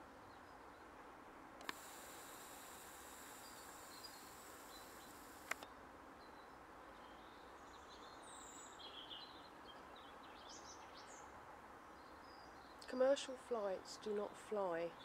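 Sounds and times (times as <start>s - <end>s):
faint outdoor hiss: 0.0s - 15.0s
click: 1.6s - 1.8s, 5.4s - 5.7s.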